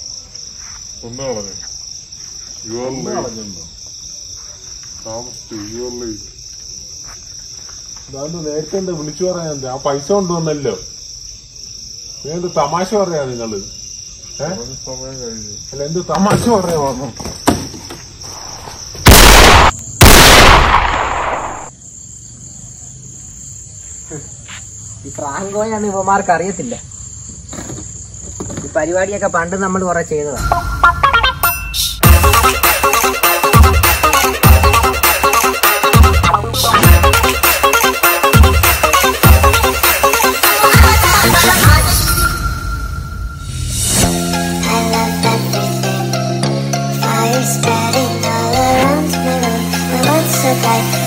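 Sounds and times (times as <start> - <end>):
crickets trilling: 0.0 - 46.2
pistol shots: 18.6 - 21.7.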